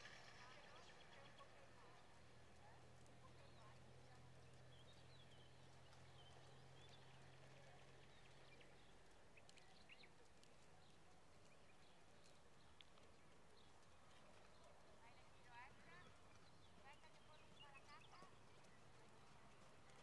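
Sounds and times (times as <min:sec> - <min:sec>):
soft ticks: 0:02.0 - 0:14.6.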